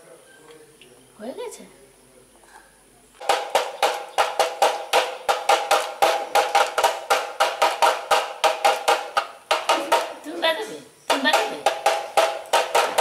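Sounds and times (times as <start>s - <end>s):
sticks drumming on plastic jar: 3.2s - 10.5s, 11.1s - 13.0s.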